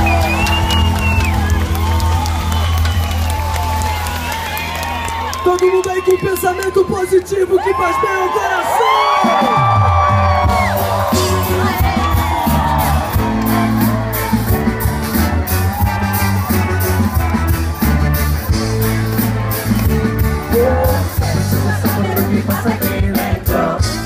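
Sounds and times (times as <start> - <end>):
reggae band playing: 0.0 - 5.2, 8.9 - 24.0
crowd whooping: 0.0 - 22.4
person singing: 20.5 - 24.0.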